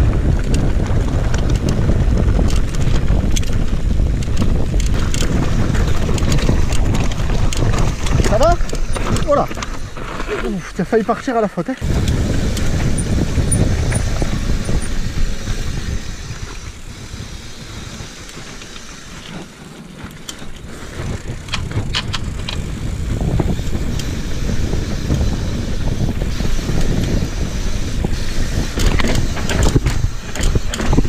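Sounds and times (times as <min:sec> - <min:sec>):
bike wind and tyre rumble: 0:00.0 - 0:31.0
sharp clicks: 0:28.6 - 0:31.0.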